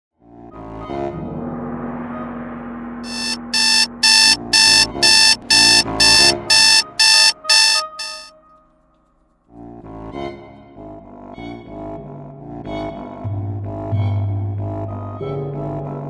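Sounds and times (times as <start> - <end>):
electronic alarm clock beeping: 3.1 - 8.3.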